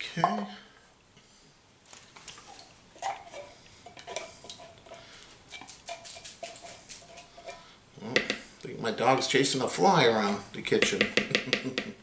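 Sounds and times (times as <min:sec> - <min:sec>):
spatula scraping tin can: 0:02.5 - 0:08.4.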